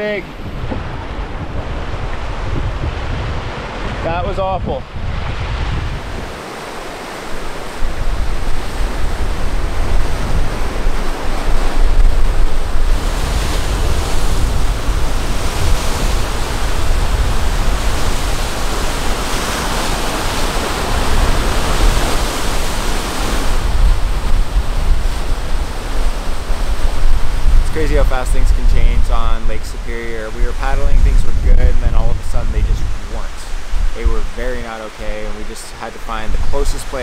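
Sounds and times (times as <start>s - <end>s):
wind rumbling on microphone: 0.0s - 35.3s
waves breaking on rocks: 5.9s - 28.4s.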